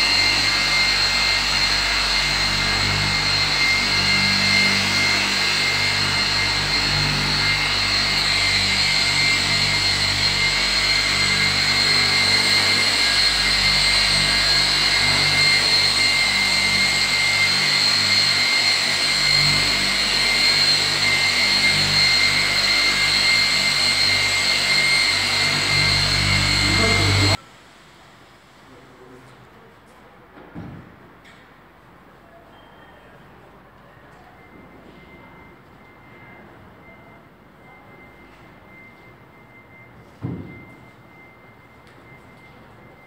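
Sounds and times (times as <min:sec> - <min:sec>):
electric polisher whining: 0:00.0 - 0:27.4.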